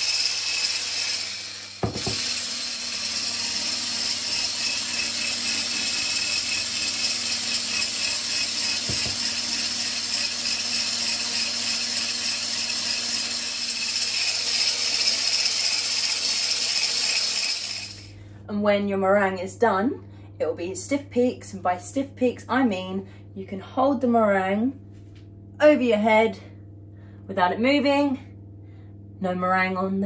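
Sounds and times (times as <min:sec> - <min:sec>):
electric hand blender whisking: 0:00.0 - 0:18.1.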